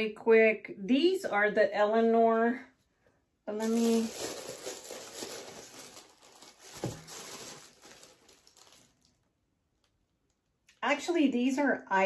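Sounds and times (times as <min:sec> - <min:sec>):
tissue paper rustling: 0:03.6 - 0:09.2.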